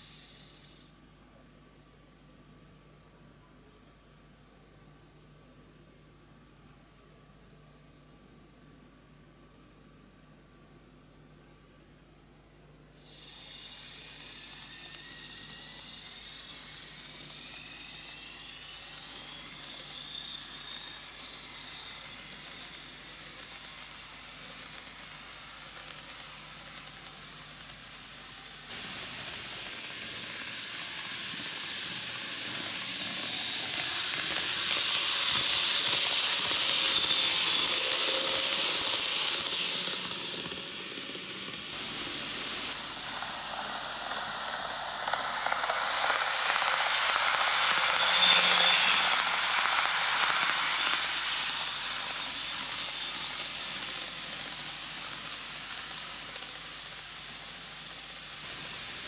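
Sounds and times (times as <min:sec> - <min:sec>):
model train motor whine: 0:00.0 - 0:00.9, 0:13.0 - 0:59.0
wheels hissing on rails: 0:00.0 - 0:00.9, 0:13.0 - 0:59.0.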